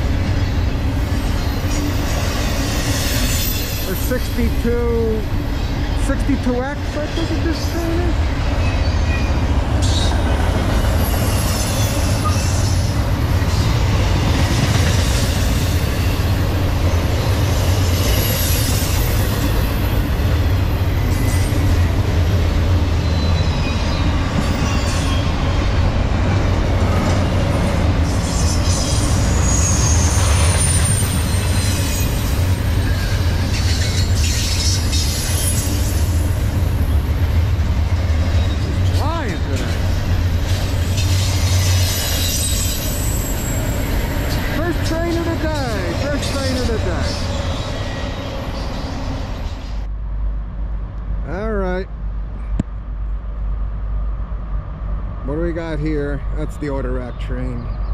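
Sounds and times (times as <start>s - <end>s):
train cars rumbling past: 0.0s - 57.9s
faint high wheel squeals: 1.3s - 4.5s, 23.0s - 25.8s, 28.2s - 36.4s, 40.8s - 44.5s.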